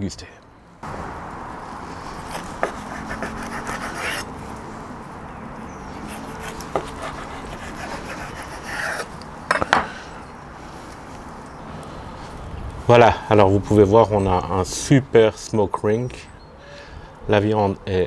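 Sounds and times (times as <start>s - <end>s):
knife sawing through ribs: 2.1s - 4.3s, 6.0s - 9.1s.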